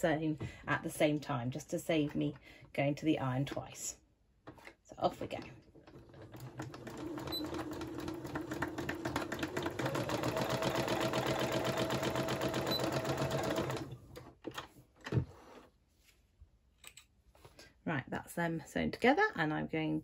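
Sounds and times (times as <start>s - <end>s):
sewing machine stitching: 5.3s - 15.6s.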